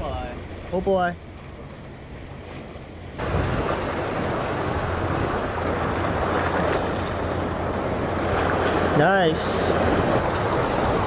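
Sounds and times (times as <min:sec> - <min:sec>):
sea water washing against boat: 0:00.0 - 0:11.0
wind on microphone: 0:03.2 - 0:11.0.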